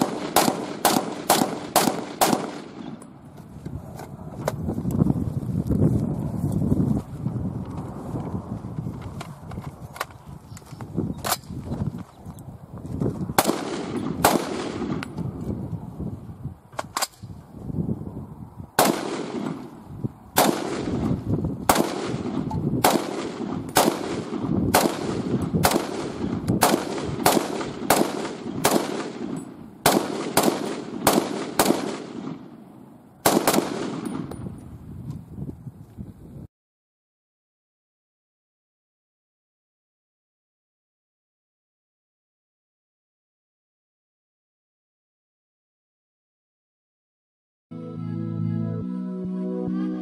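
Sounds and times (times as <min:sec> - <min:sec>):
loud rifle shots with echo: 0:00.0 - 0:03.0, 0:13.4 - 0:15.1, 0:18.8 - 0:19.7, 0:20.4 - 0:32.6, 0:33.2 - 0:34.4.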